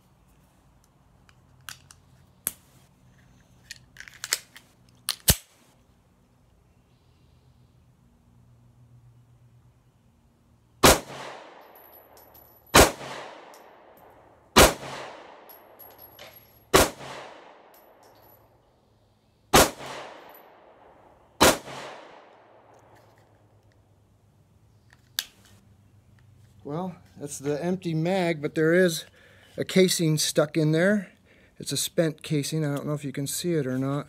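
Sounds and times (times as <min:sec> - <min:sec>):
pistol shots: 0:10.8 - 0:11.6, 0:12.7 - 0:13.6, 0:14.6 - 0:15.5, 0:16.7 - 0:17.7, 0:19.5 - 0:20.4, 0:21.4 - 0:22.3.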